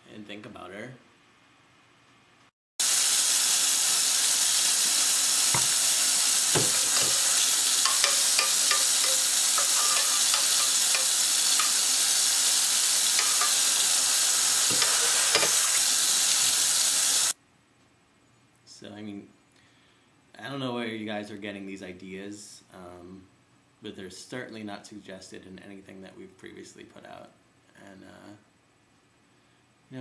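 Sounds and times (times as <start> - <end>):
tap water running into sink: 5.5 - 11.9, 14.6 - 15.9
pot knocking and clinking: 5.6 - 5.9, 6.5 - 12.1, 13.0 - 14.0, 14.6 - 15.8
pot being scrubbed: 6.6 - 16.0.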